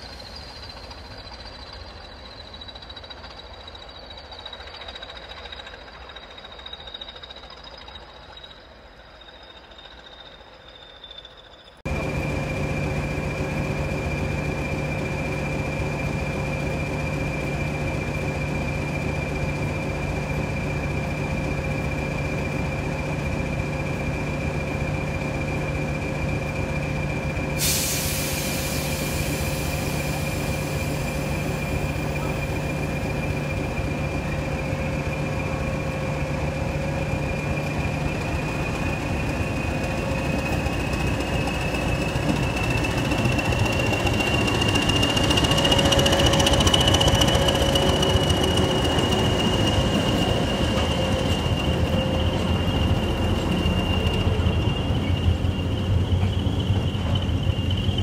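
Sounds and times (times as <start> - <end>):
diesel locomotive engine idling: 11.8 - 58.0
air hissing: 27.6 - 31.8
turbocharger whistle: 39.0 - 58.0.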